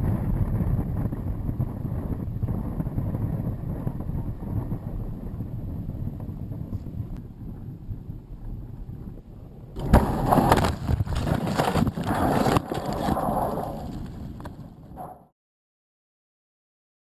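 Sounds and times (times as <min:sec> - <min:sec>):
wind rumble on microphone: 0:00.0 - 0:15.3
knocking and scraping: 0:09.8 - 0:14.8
loud jolt of landing: 0:09.8 - 0:14.8.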